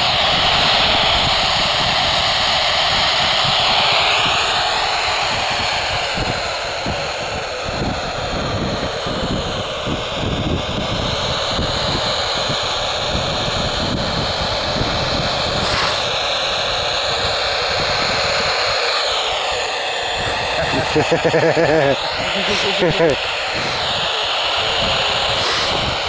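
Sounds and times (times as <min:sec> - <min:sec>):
wind rumbling on microphone: 0:00.0 - 0:26.0
radio static hiss: 0:15.5 - 0:26.0.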